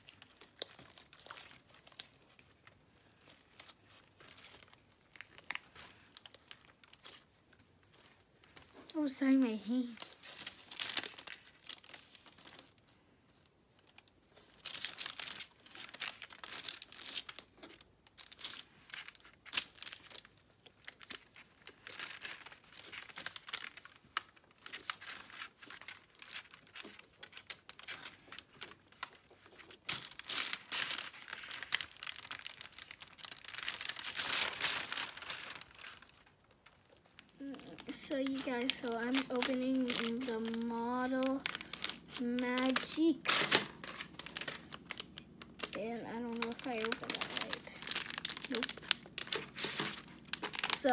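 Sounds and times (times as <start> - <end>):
slime crackling and popping: 0.0 - 7.3, 8.4 - 12.7, 13.8 - 50.9
paper crinkling: 0.0 - 50.9.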